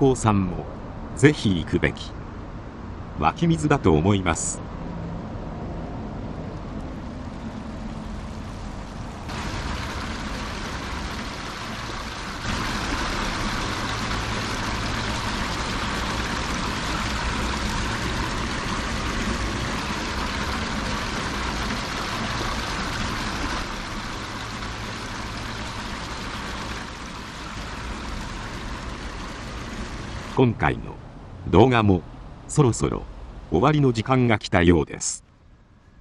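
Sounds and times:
low rumble of road traffic: 0:00.0 - 0:36.0
spring water splashing into basin: 0:09.2 - 0:30.4.

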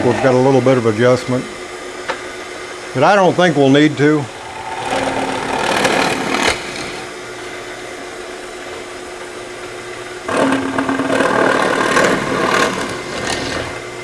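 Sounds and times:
drill press motor running: 0:04.2 - 0:08.4, 0:10.0 - 0:14.0
drill bit boring into plywood: 0:04.4 - 0:07.1, 0:10.3 - 0:13.8.

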